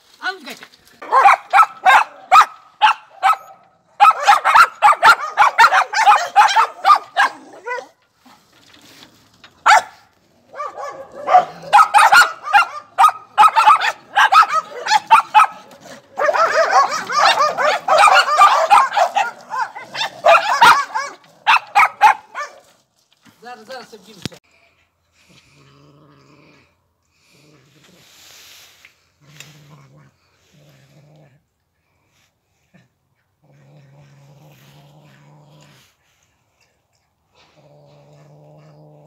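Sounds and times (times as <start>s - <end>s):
dogs barking: 1.0s - 8.0s, 9.6s - 22.7s.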